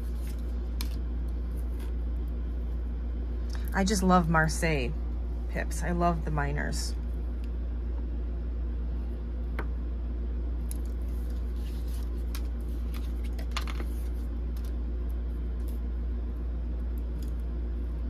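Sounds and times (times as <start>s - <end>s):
steady low hum: 0.0s - 18.0s
cards tapping and sliding: 11.2s - 14.7s.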